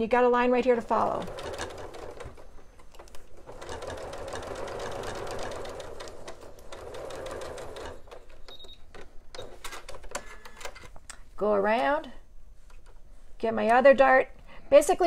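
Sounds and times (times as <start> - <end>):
electric sewing machine stitching: 0.7 - 8.4.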